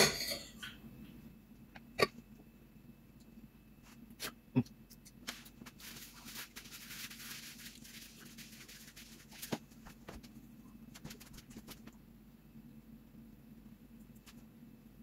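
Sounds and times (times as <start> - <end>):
hands rubbing together: 5.1 - 10.3.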